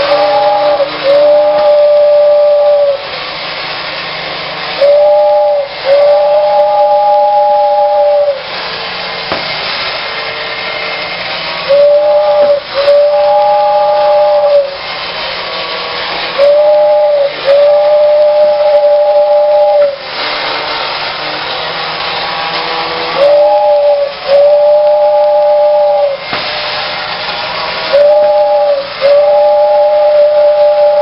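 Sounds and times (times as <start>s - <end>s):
toy train two-note whistle: 0.0s - 3.1s, 4.7s - 8.6s, 11.6s - 20.5s, 22.0s - 26.6s, 27.8s - 31.0s.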